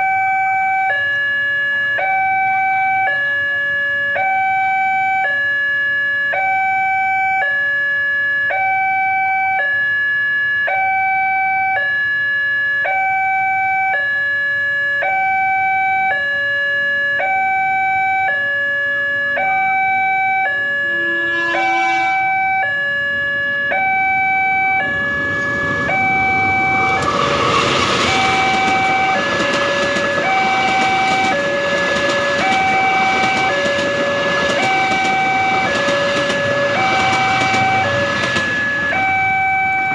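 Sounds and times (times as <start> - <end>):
two-tone level crossing alarm: 0.0 - 39.9
train horn: 20.8 - 22.5, 28.0 - 39.1
train wheels on rails: 24.6 - 39.9.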